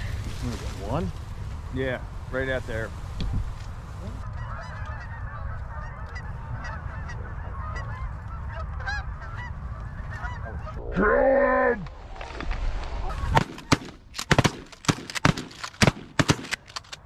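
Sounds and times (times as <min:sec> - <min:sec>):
wind rumble on microphone: 0:00.0 - 0:11.0
geese honking: 0:04.1 - 0:11.3.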